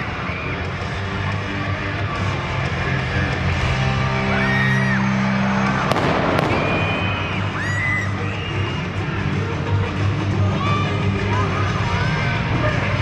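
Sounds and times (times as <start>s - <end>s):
music over arena sound system: 0.0s - 13.0s
crowd whooping: 4.1s - 9.3s
pyrotechnic bangs: 5.9s - 7.8s.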